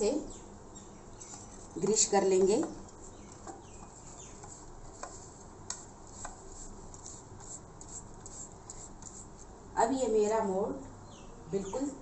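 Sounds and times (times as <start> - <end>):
brush sweeping over paper: 4.0 - 9.5.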